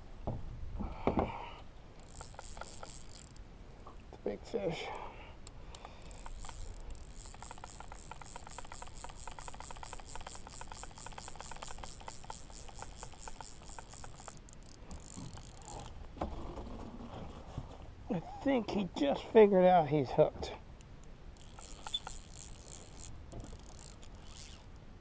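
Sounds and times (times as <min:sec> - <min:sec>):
fishing reel ratchet clicking: 0:02.0 - 0:03.4, 0:05.4 - 0:16.0, 0:21.4 - 0:24.8.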